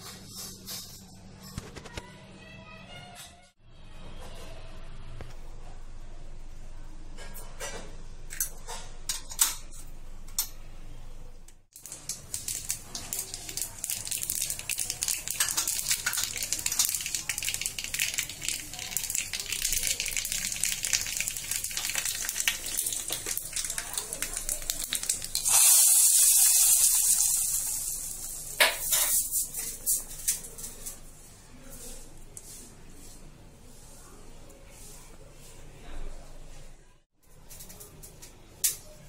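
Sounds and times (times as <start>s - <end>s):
seeds popping in hot oil: 11.7s - 30.4s.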